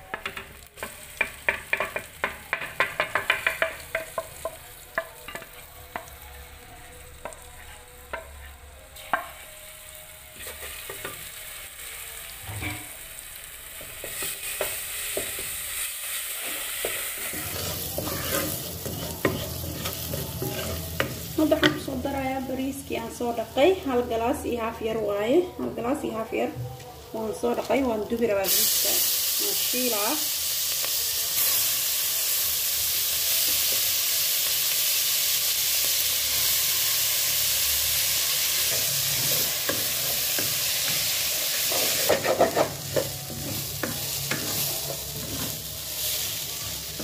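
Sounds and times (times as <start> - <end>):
oil sizzling: 0.0 - 26.2, 27.0 - 47.0
wooden spoon tapping metal pot: 0.1 - 6.1.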